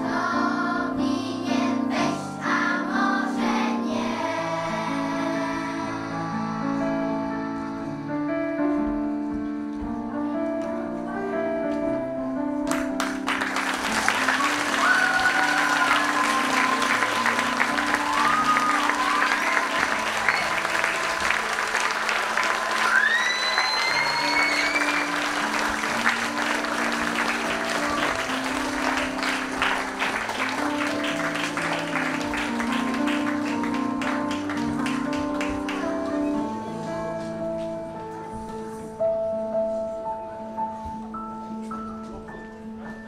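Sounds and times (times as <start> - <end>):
keyboard playing gentle tune: 0.0 - 43.0
audience applauding: 12.7 - 36.5
cheers: 13.4 - 33.8.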